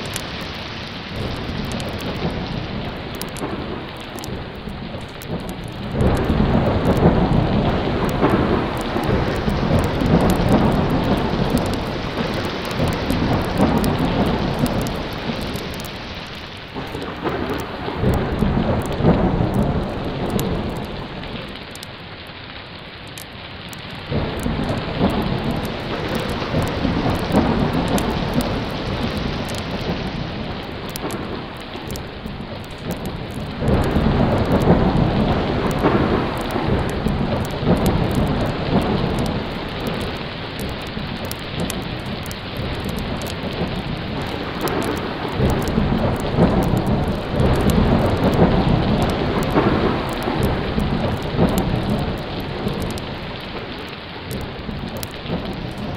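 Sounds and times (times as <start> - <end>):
rolling thunder: 0.0 - 22.2, 23.9 - 55.9
heavy rain: 0.0 - 55.9.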